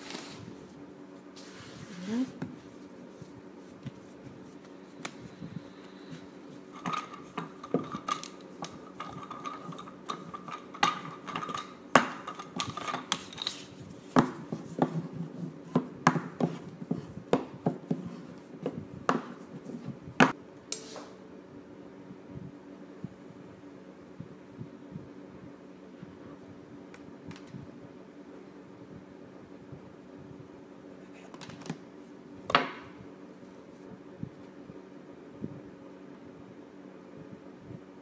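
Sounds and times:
rolling pin rolling pastry: 0:00.0 - 0:20.4.

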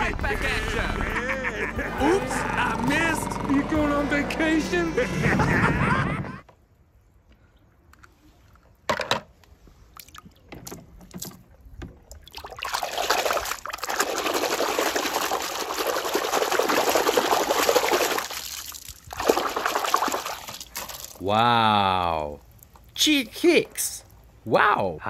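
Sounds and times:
water pouring and splashing: 0:09.9 - 0:21.3.

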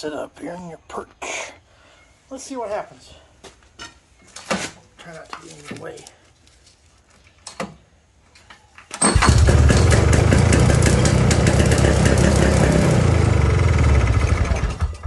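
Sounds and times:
snowmobile engine roaring: 0:09.3 - 0:14.7.

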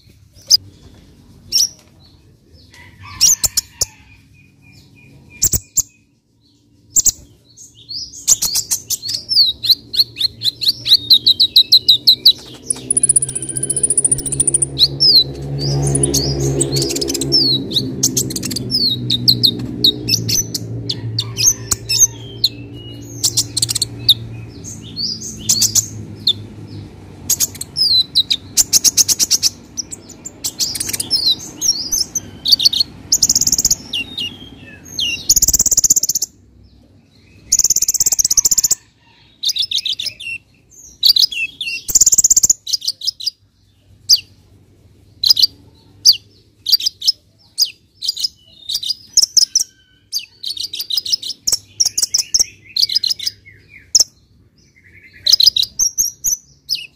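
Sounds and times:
bird singing chirps and trills: 0:00.0 - 0:44.4, 0:45.0 - 0:56.9.

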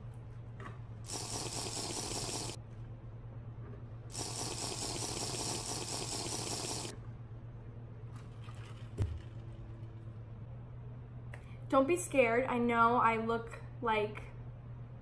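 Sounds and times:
steady low hum: 0:00.0 - 0:08.2
slurping through a straw: 0:04.1 - 0:06.9.

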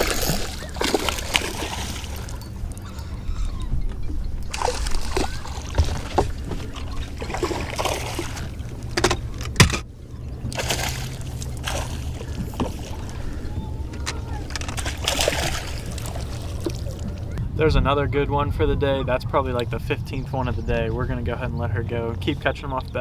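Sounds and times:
fish splashing in water: 0:00.0 - 0:03.4, 0:04.4 - 0:09.4, 0:10.4 - 0:17.4
low rumble: 0:02.0 - 0:23.0.

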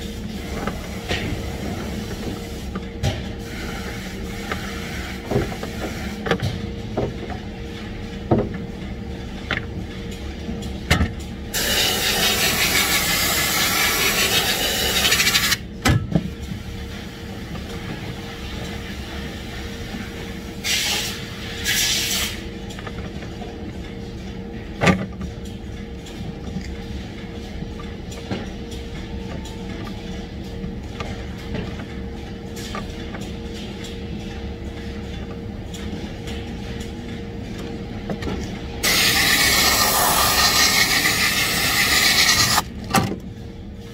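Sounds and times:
machinery hum: 0:00.0 - 0:43.9
compressed air hissing: 0:11.6 - 0:15.6, 0:38.8 - 0:42.6.

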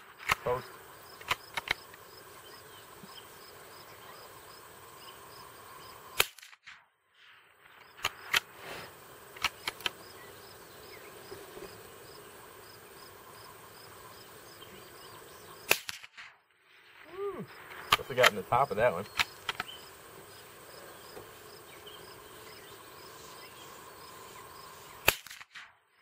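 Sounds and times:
insects chirping: 0:00.0 - 0:16.0, 0:16.6 - 0:26.0
sharp gunshots: 0:06.2 - 0:08.7, 0:15.6 - 0:19.8, 0:25.0 - 0:25.8.

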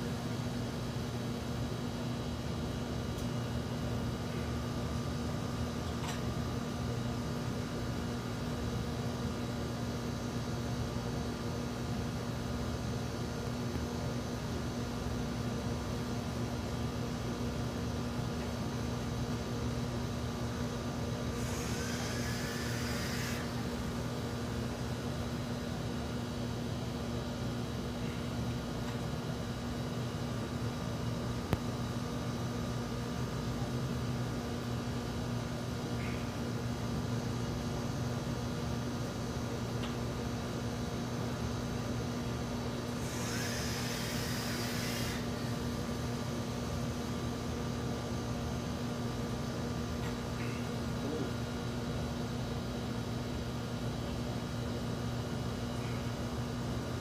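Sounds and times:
steady low hum: 0:00.0 - 0:57.0
vape coil sizzle and air rush: 0:43.1 - 0:45.3.

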